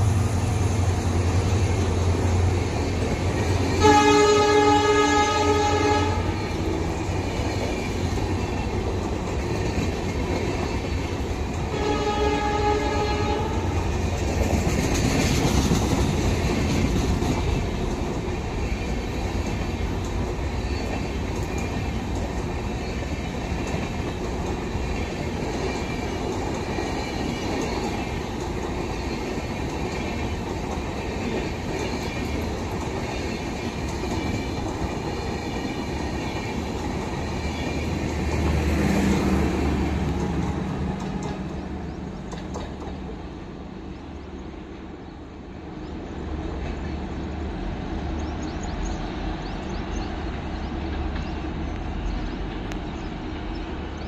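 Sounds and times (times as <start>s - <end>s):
train wheels rumbling on rail: 0.0s - 54.0s
train horn: 3.7s - 6.8s, 11.6s - 13.9s.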